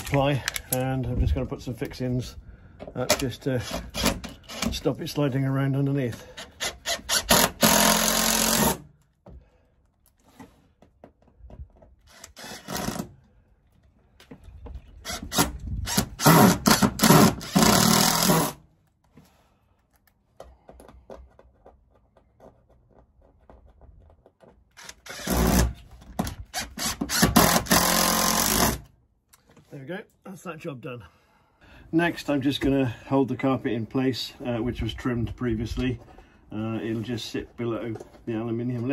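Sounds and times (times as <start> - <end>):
impact driver driving screws: 3.6 - 4.8, 6.4 - 8.8, 12.1 - 13.1, 15.0 - 18.6, 24.7 - 28.9.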